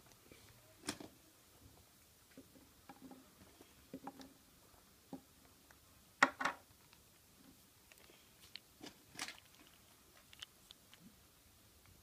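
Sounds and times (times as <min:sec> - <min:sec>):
crackly rustle: 0:06.7 - 0:12.0.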